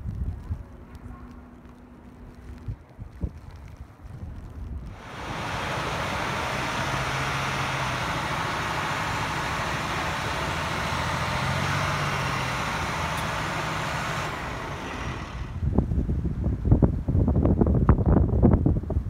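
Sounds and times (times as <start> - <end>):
truck engine low hum: 0.0 - 17.1
wind buffeting microphone: 0.0 - 19.0
truck skidding on snow: 4.8 - 15.7.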